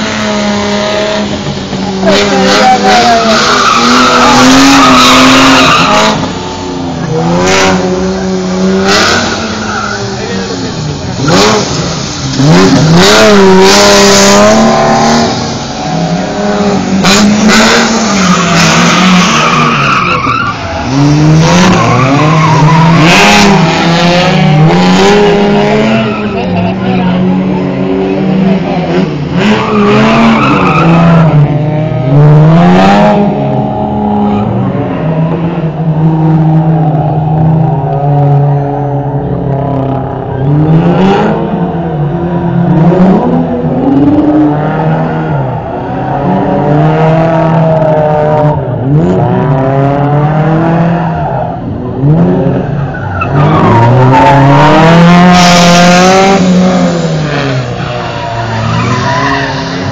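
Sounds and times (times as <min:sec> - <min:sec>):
car engine revving hard: 0:00.0 - 0:59.9
tyres squealing: 0:57.6 - 0:59.9.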